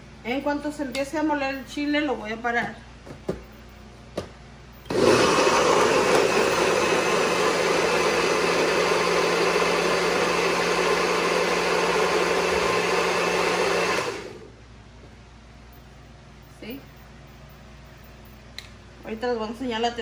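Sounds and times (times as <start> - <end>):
blender running: 4.9 - 14.5.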